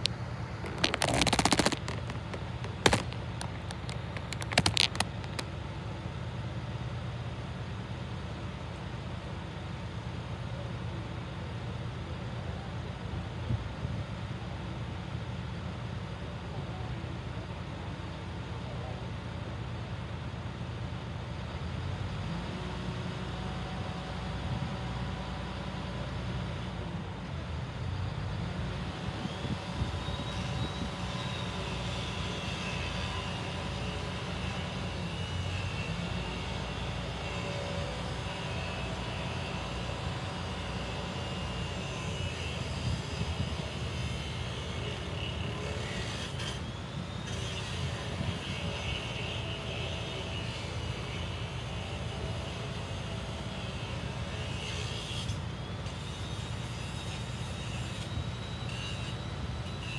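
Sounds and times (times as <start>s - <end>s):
truck engine running: 0.0s - 6.1s.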